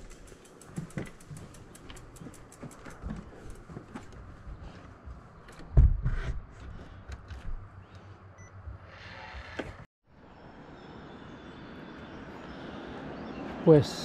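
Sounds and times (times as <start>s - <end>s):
steady outdoor hiss: 0.0s - 4.0s.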